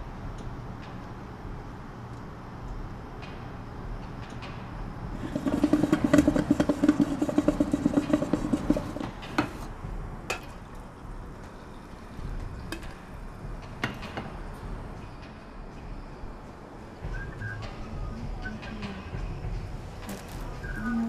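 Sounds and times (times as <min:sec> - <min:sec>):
coffee maker gurgling and buzzing: 0:05.1 - 0:09.6.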